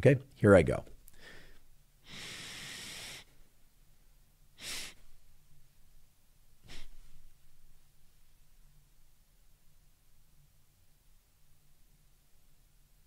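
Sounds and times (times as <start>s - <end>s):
man inhaling sharply through nose: 1.1s - 3.4s, 4.6s - 5.2s, 6.6s - 7.2s.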